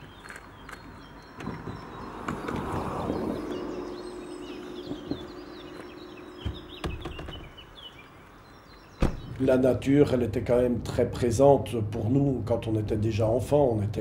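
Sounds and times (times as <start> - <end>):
footsteps on gravel: 0.0 - 1.8
birds singing: 0.0 - 14.0
steady hum: 2.8 - 9.2
car tailgate opening: 6.4 - 7.6, 9.0 - 9.4
sharp knocks: 6.4 - 7.6.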